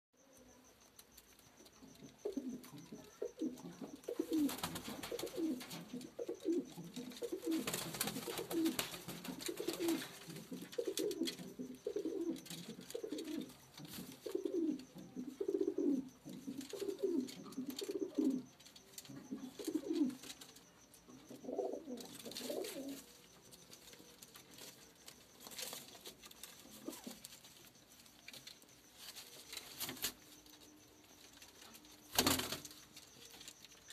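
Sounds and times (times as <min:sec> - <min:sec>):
pigeons cooing: 0:01.6 - 0:28.4
clicks and rustles: 0:16.1 - 0:33.9.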